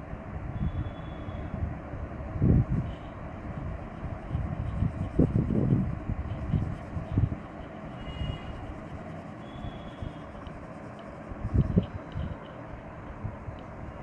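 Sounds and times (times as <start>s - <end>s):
low background rumble: 0.0s - 14.0s
pencil scratching on paper: 4.0s - 12.4s.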